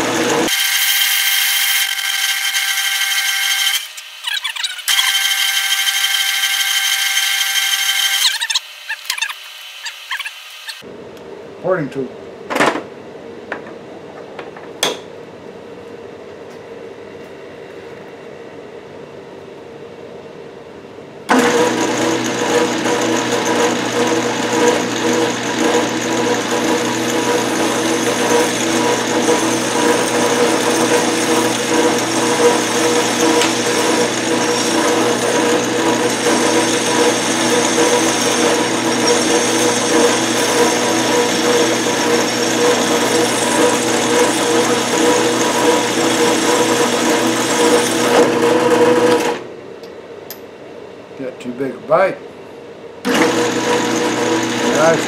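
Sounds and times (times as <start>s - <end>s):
metal lathe whining: 0.0s - 10.8s, 21.3s - 49.4s, 53.1s - 55.0s.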